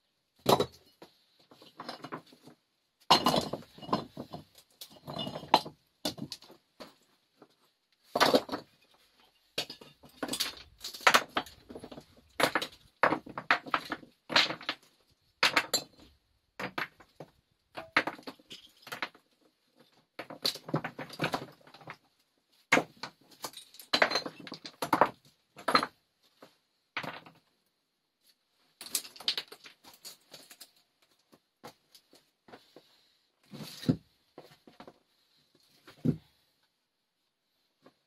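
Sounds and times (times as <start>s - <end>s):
stones clinking and clattering: 3.1s - 7.0s, 8.0s - 22.0s, 22.7s - 26.0s, 28.8s - 32.3s.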